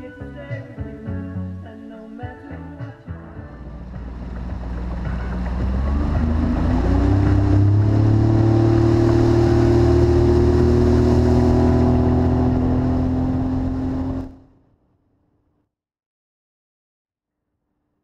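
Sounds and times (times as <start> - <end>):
outboard motor speeding up: 3.4 - 14.4.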